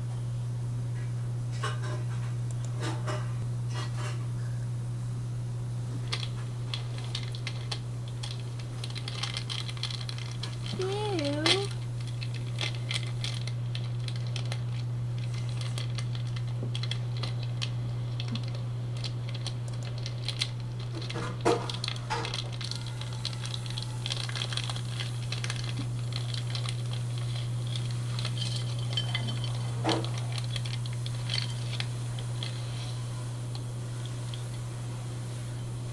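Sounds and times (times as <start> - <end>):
low electrical hum: 0.0 - 35.9.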